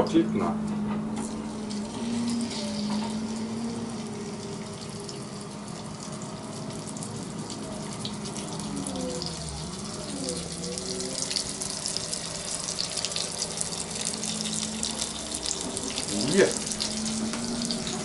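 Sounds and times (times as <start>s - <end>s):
low wavering tone: 0.9s - 5.8s, 16.6s - 18.0s
chicken sizzling in hot oil: 1.4s - 18.0s.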